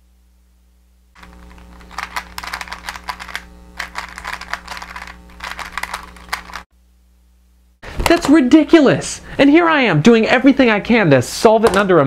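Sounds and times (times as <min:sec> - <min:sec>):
puzzle cube plastic clicks: 0:01.2 - 0:06.6.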